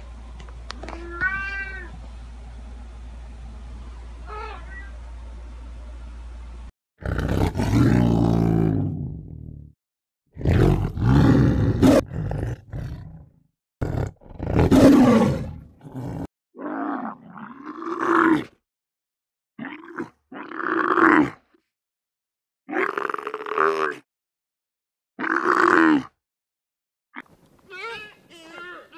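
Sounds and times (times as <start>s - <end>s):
tiger roaring: 7.0s - 9.5s, 10.4s - 18.5s.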